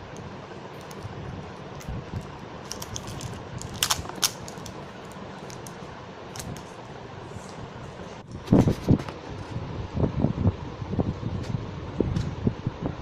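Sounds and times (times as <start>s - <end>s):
foil wrapper crinkling and tearing: 1.8s - 6.7s.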